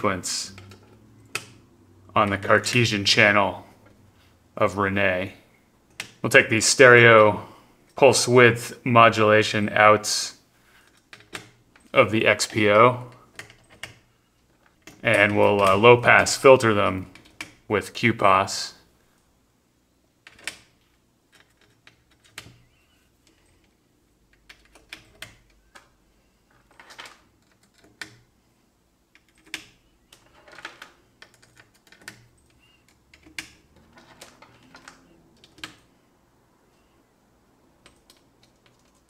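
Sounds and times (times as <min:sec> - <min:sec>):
patch cables clicking into jacks: 0:10.8 - 0:17.7, 0:20.3 - 0:26.0, 0:29.1 - 0:36.0, 0:37.8 - 0:39.0.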